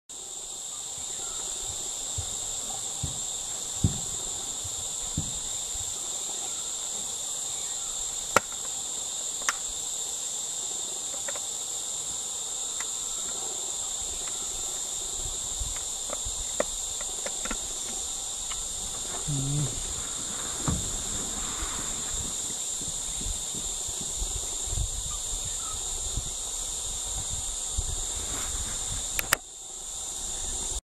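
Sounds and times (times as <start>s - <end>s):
insect chorus chirring: 0.1s - 30.8s
low thumps: 18.6s - 24.4s.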